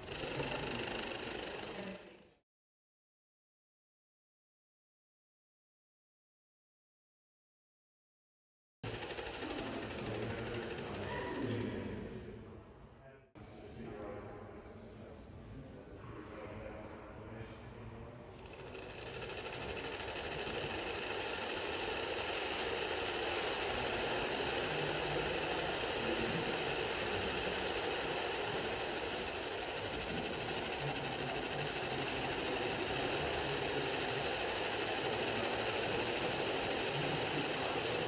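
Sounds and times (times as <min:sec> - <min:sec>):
grainy mechanical rattle: 0:00.0 - 0:02.2, 0:08.9 - 0:11.6, 0:18.4 - 0:38.0.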